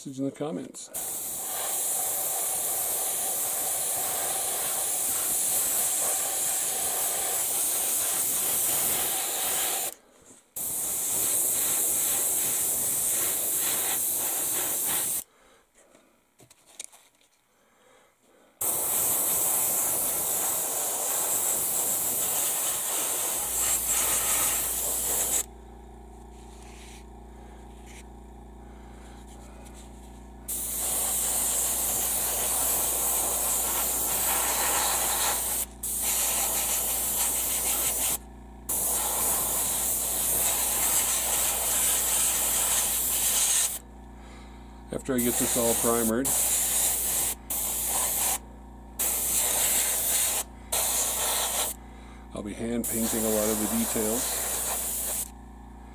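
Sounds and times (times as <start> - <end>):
airbrush spraying hiss: 1.0 - 10.0, 10.6 - 15.3, 18.6 - 25.5, 30.5 - 43.8, 45.0 - 48.4, 49.0 - 51.8, 52.8 - 55.3.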